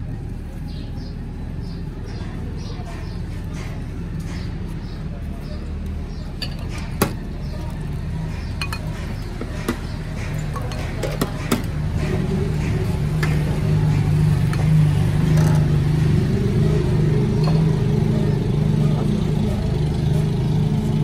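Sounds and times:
motor engine running: 0.0 - 21.0
steel ladle clinking against bowls: 6.3 - 7.8, 8.4 - 11.8.

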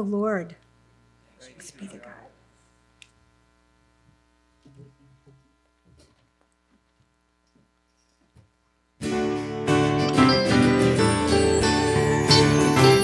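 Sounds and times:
electrical hum: 0.0 - 9.0.

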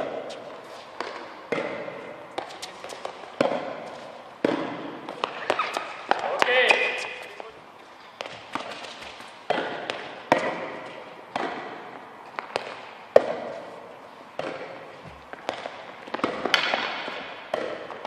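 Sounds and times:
tennis balls bouncing on court: 0.0 - 18.0
tennis balls hit with racquets: 0.0 - 18.0.

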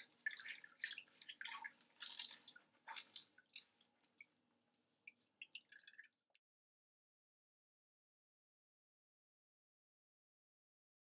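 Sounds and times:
water splashing and dripping: 0.0 - 6.4.

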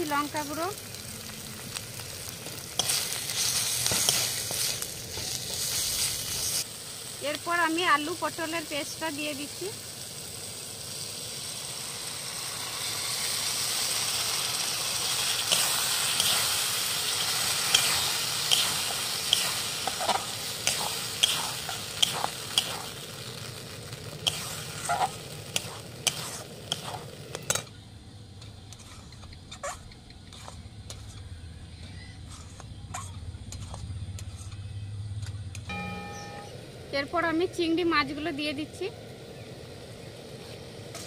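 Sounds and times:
food sizzling in oil: 0.0 - 27.8, 35.7 - 41.0
metal spatula scraping a wok: 2.5 - 6.6, 15.0 - 22.9, 24.2 - 27.7, 28.7 - 31.2, 31.8 - 34.7.

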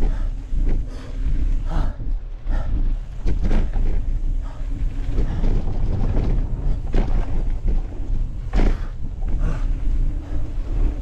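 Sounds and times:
bike rumbling and rattling: 0.0 - 11.0
wind on microphone: 0.0 - 11.0.

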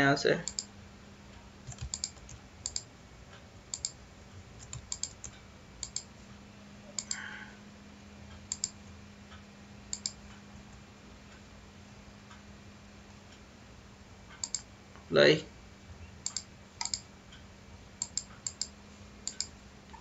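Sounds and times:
faint low hum: 0.0 - 20.0
computer mouse clicking: 0.4 - 0.7, 1.6 - 2.9, 3.7 - 4.0, 4.6 - 6.1, 7.0 - 7.2, 8.5 - 8.8, 9.9 - 10.2, 14.4 - 14.7, 16.2 - 17.0, 18.0 - 20.0.

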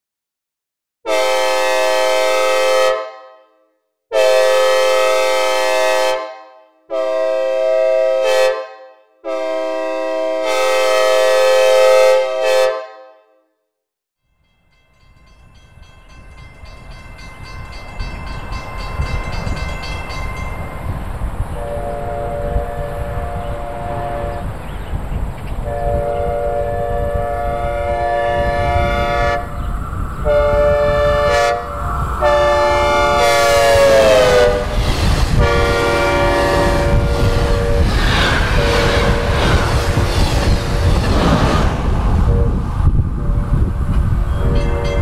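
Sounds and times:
train horn blasts with reverb: 1.1 - 13.6, 21.5 - 24.5, 25.6 - 39.8, 44.3 - 45.0
approaching train rumble: 14.4 - 45.0.

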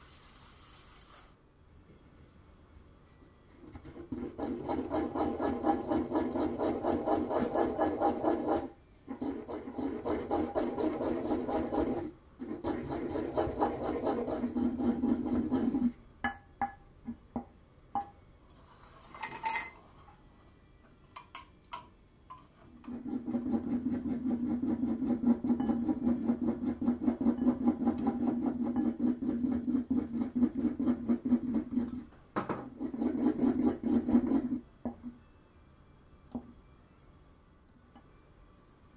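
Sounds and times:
pestle scraping in ceramic mortar: 3.5 - 16.0, 22.7 - 35.0
glassy clink: 19.2 - 19.8.

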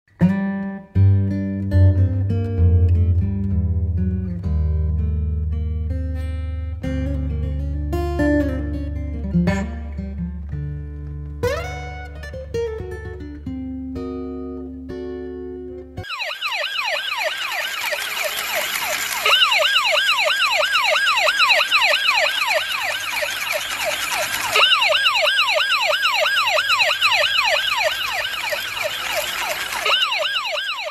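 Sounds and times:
plucked guitar music: 0.1 - 16.0
toy police siren wailing: 16.0 - 30.9.

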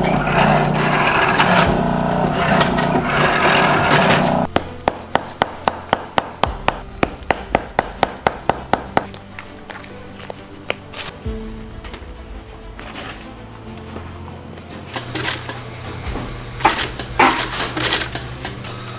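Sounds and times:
roller machine humming: 0.0 - 4.5
hammer tapping leather on bench: 4.5 - 9.2.

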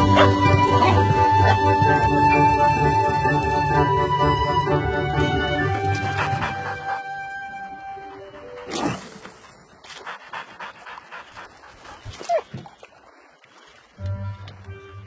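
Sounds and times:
dog panting: 5.8 - 9.2, 9.8 - 12.4
dog whining: 12.2 - 12.5.

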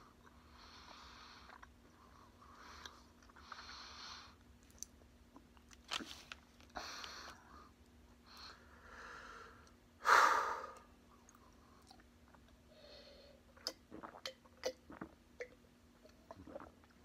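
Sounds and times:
gulping water: 13.5 - 17.0.

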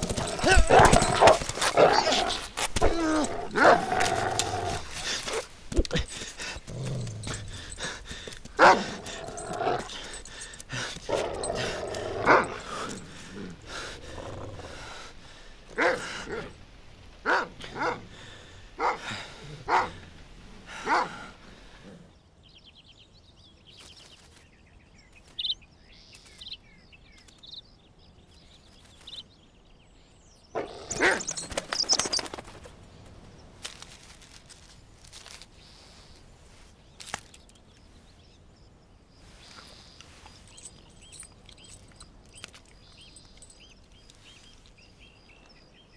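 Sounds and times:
birds chirping: 0.0 - 45.9
dog barking: 8.6 - 9.0, 18.8 - 19.0, 20.8 - 21.2.

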